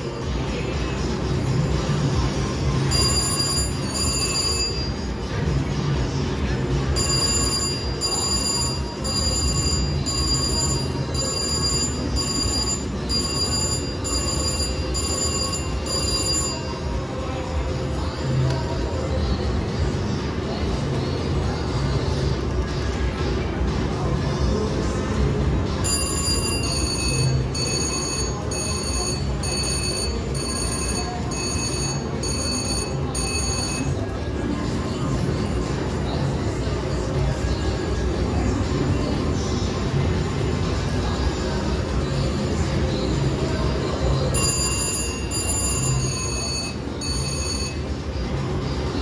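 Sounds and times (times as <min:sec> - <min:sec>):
casino background din: 0:00.0 - 0:49.0
slot machine win chimes: 0:02.8 - 0:05.3, 0:06.9 - 0:16.9, 0:25.8 - 0:34.3, 0:44.2 - 0:48.1.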